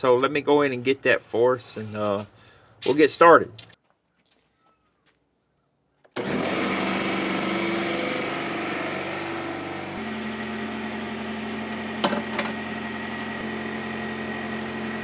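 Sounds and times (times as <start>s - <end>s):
air compressor running: 6.2s - 15.0s.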